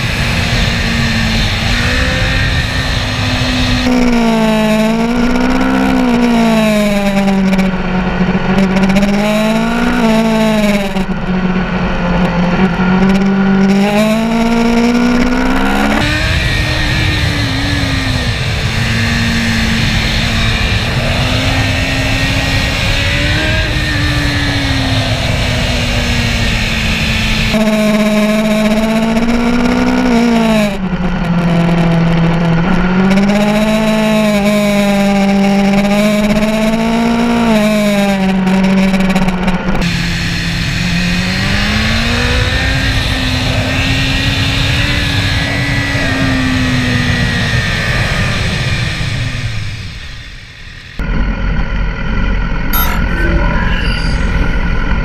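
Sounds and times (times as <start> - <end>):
wind rushing over microphone: 0.0 - 10.1
motorcycle engine running: 0.0 - 55.0.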